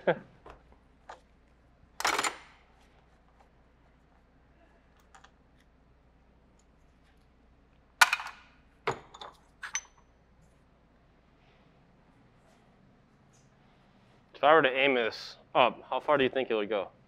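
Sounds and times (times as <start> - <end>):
metal tools clinking on workbench: 8.9 - 10.1.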